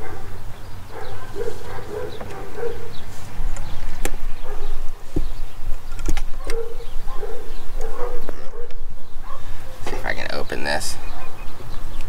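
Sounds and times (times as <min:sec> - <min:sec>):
dog barking: 0:00.0 - 0:03.0, 0:04.4 - 0:04.8, 0:06.4 - 0:09.8, 0:11.1 - 0:11.4.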